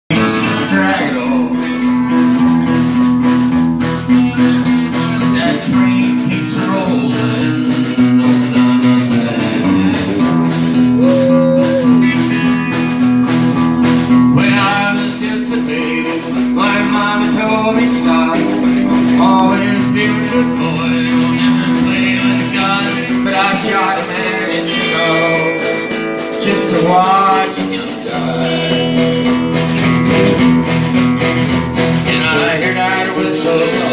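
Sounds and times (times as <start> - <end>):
acoustic guitar strumming: 0.1 - 33.9
electric guitar lead with bent notes: 0.1 - 33.9.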